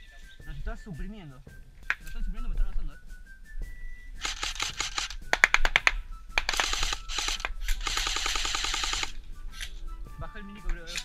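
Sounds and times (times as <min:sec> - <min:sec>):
airsoft rifles firing: 0:04.2 - 0:09.2.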